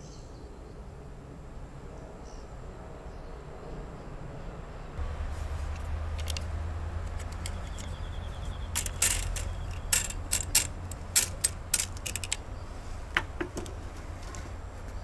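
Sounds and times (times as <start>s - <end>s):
steady low hum: 0.5s - 15.0s
sharp metallic clicks and clinks: 5.7s - 12.5s.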